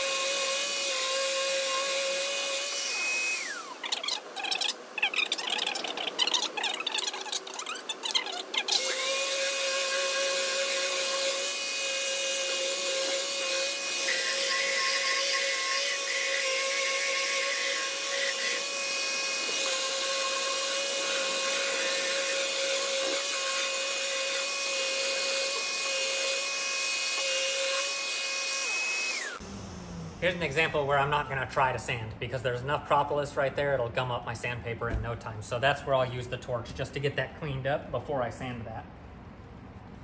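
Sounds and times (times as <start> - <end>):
dust extractor suction: 0.0 - 29.5
orbital sander whining: 0.0 - 31.3.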